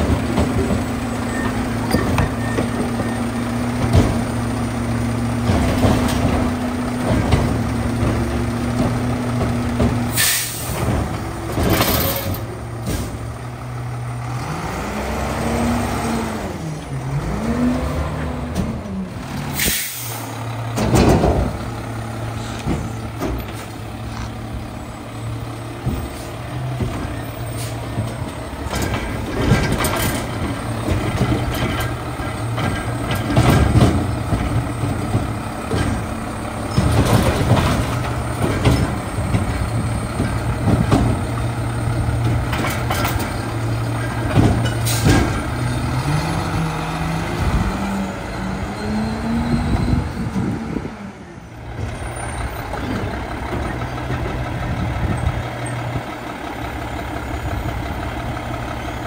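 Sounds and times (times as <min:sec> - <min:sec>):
garbage truck engine running: 0:00.0 - 0:59.0
loud metal clanks and bangs: 0:18.4 - 0:24.0, 0:24.6 - 0:46.5.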